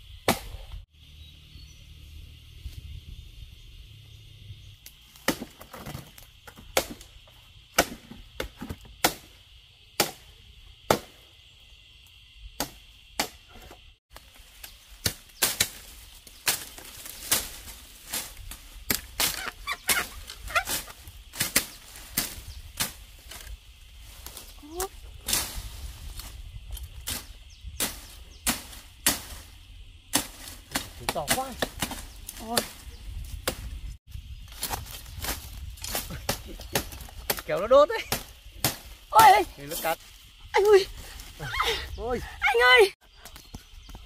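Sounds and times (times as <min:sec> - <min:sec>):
machete chopping bamboo: 0:00.2 - 0:00.6, 0:05.2 - 0:07.1, 0:07.7 - 0:09.3, 0:10.0 - 0:10.3, 0:10.9 - 0:11.2, 0:12.6 - 0:23.5, 0:27.0 - 0:29.4, 0:30.1 - 0:32.8, 0:33.4 - 0:33.7, 0:34.5 - 0:39.5.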